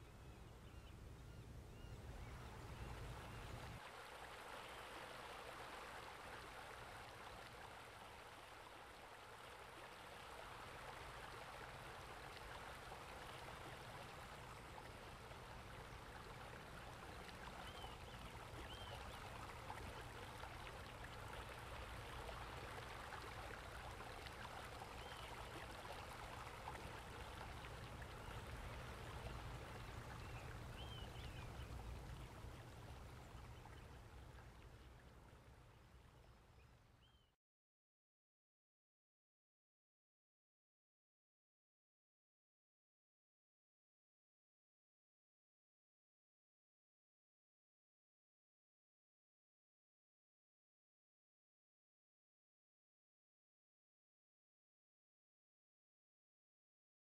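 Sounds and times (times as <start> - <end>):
running water: 1.9 - 37.0.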